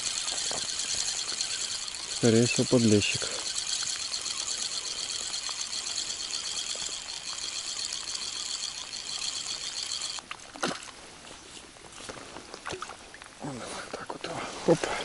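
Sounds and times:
fishing reel whirring: 0.0s - 10.2s.

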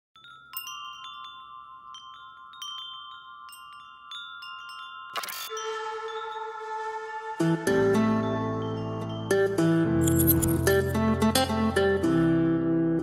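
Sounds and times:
metal wind bells ringing: 0.2s - 6.8s, 8.4s - 10.9s.

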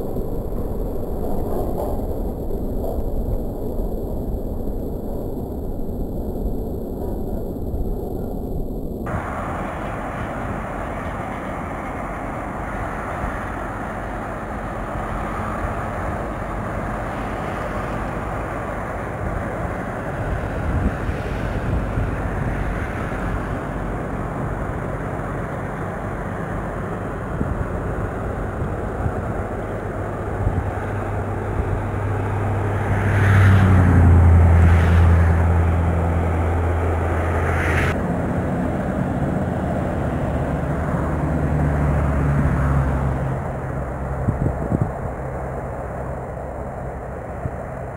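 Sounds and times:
distant road traffic rumble: 0.0s - 47.9s
vehicle engine droning: 0.0s - 47.9s.

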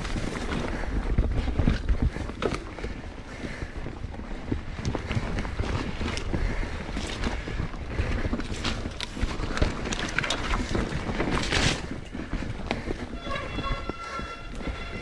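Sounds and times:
bike knocking and rattling: 0.0s - 15.0s
bike tyres rolling over dirt: 0.0s - 15.0s.

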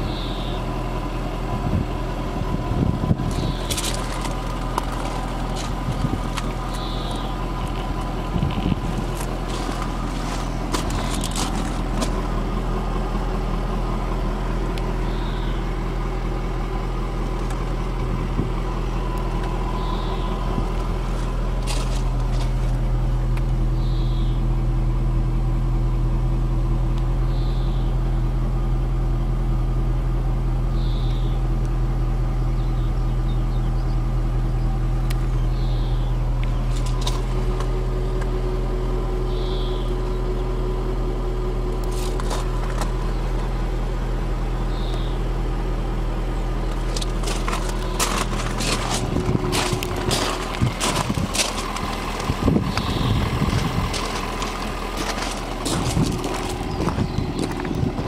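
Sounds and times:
faint high chirp: 0.0s - 0.6s, 6.7s - 7.4s, 15.0s - 15.7s, 19.7s - 20.4s, 23.8s - 24.5s, 27.2s - 28.0s, 30.7s - 31.4s, 35.3s - 36.2s, 39.2s - 40.2s, 44.7s - 45.2s
car engine idling: 0.0s - 58.0s.

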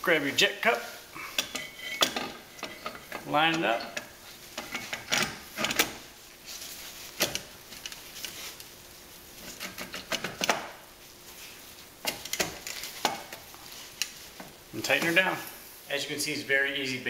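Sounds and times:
metal clicks knocks and scrapes: 1.3s - 6.0s, 9.4s - 10.8s, 12.0s - 14.5s.

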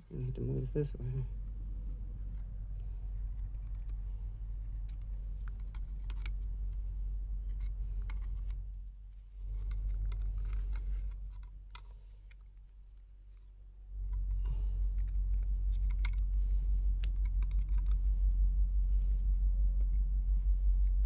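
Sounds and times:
low rumble: 0.0s - 21.0s
screwdriver clicking and scraping plastic: 4.8s - 6.5s.

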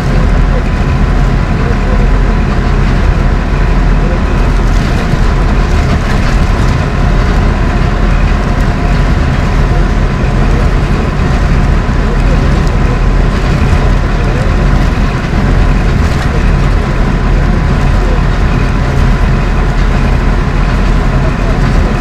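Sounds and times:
bus interior engine and road drone: 0.0s - 22.0s.

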